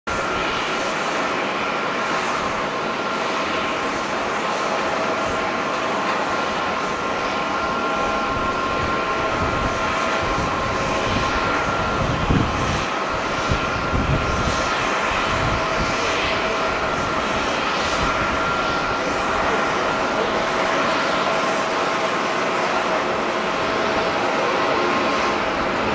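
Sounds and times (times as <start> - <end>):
jet engines roaring: 0.1 - 25.9
wind buffeting microphone: 8.0 - 21.2.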